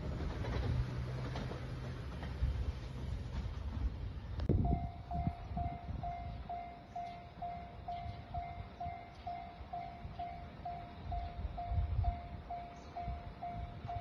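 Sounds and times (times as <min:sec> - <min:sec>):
level crossing bell ringing: 0:04.7 - 0:14.0.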